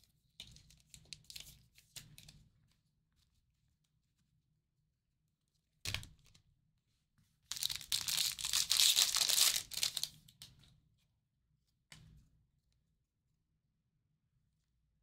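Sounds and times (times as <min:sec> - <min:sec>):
card pack wrapping ripping: 0:07.5 - 0:10.1
wrapping tearing and crinkling: 0:07.5 - 0:10.1.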